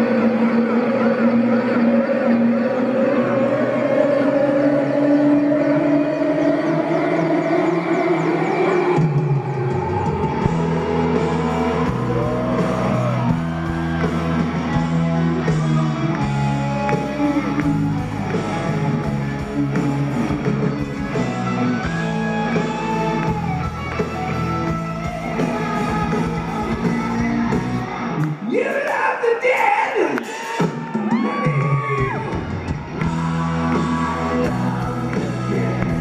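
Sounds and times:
bending guitar notes: 0:05.2 - 0:28.4
live rock band playing: 0:07.9 - 0:28.4, 0:30.2 - 0:36.0.

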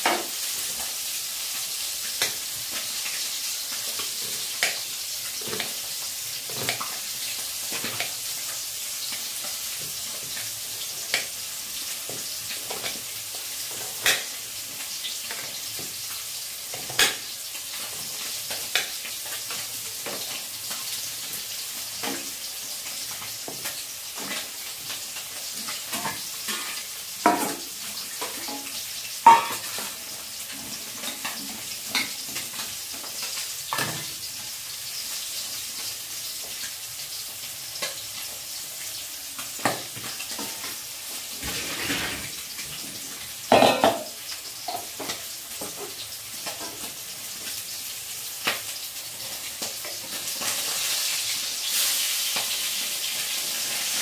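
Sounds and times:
oil sizzling in a wok: 0:00.0 - 0:54.0
steel bowl and utensils clinking: 0:43.5 - 0:44.9.

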